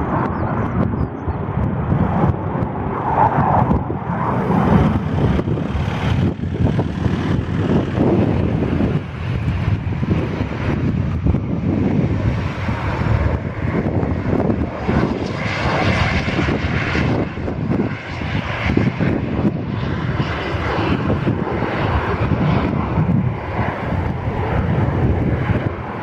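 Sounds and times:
jet engines running: 0.0 - 26.0.

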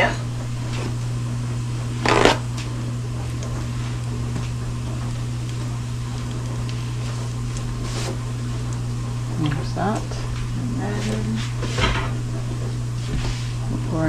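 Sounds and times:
dishwasher humming: 0.0 - 14.0
paper towel tearing: 2.0 - 2.5
paper rustling: 6.9 - 8.2.

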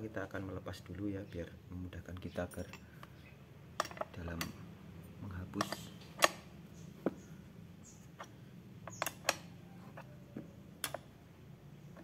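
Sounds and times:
spanner clicking on metal: 3.8 - 4.6, 5.5 - 6.5, 8.2 - 10.1, 10.8 - 11.1.

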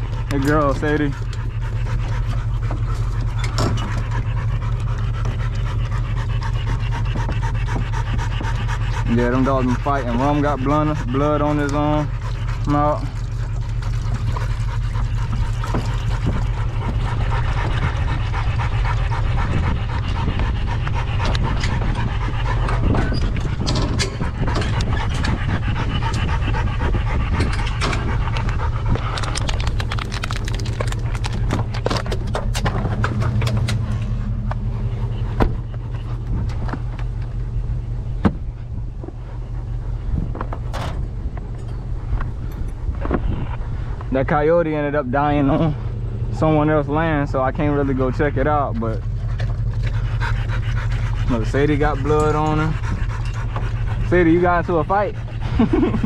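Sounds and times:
dogs panting rapidly: 0.0 - 56.0
truck engine running: 0.0 - 56.0
clicks and rattles: 27.4 - 34.0.

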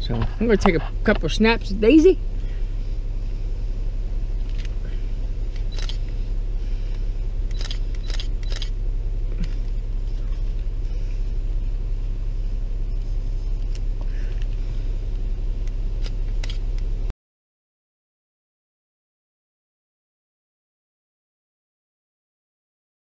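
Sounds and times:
car engine idling: 0.0 - 17.1.

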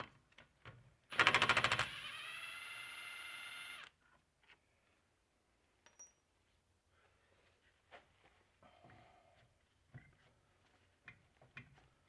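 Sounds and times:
impact wrench spinning whine: 1.1 - 3.9.

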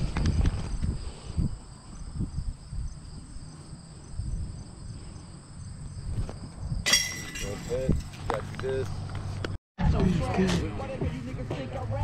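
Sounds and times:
insects trilling: 0.0 - 7.8.

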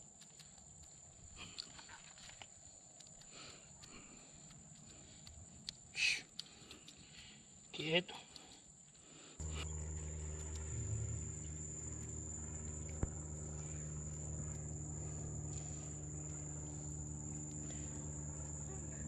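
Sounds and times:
crickets trilling: 0.0 - 19.0
low motor hum: 9.4 - 19.0.

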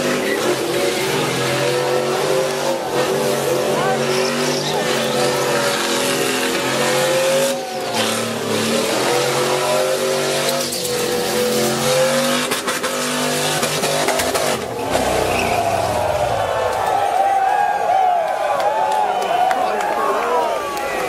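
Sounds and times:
high revving engine: 0.0 - 16.8
spinning tyres squealing: 0.0 - 17.4.

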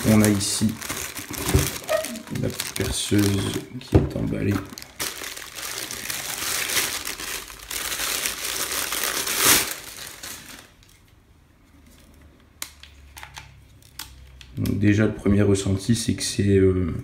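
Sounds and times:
packaging wrap crinkling: 0.0 - 11.2.

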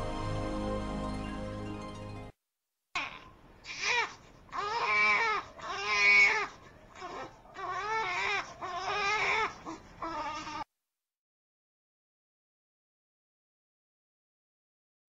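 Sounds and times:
infant crying: 3.0 - 10.7.

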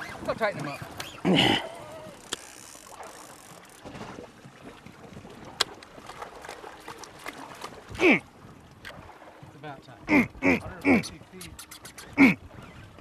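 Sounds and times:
faint wind: 0.0 - 13.0
water noise: 0.0 - 13.0
small clicks: 2.2 - 3.8.

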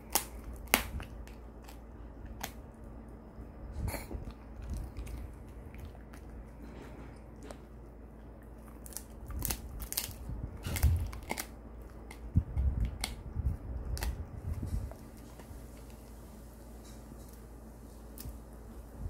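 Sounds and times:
dog crunching a hard treat: 0.0 - 2.9, 3.8 - 16.1.

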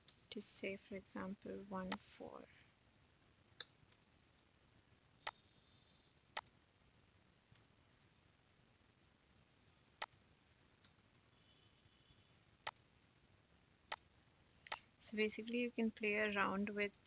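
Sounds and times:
computer mouse clicking: 6.4 - 6.6, 7.5 - 7.7, 10.8 - 11.2.

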